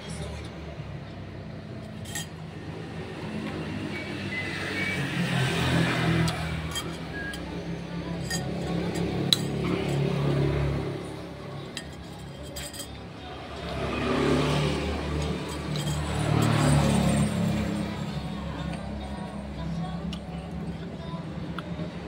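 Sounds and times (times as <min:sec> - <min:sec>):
passing road traffic hum: 0:00.0 - 0:22.0
spoon clinking against bowl: 0:06.7 - 0:09.9.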